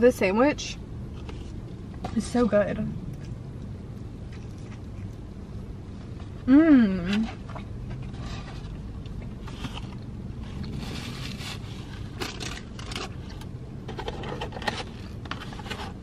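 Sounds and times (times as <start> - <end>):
steady low hum: 0.0 - 16.0
cardboard and paper rustling: 7.1 - 16.0.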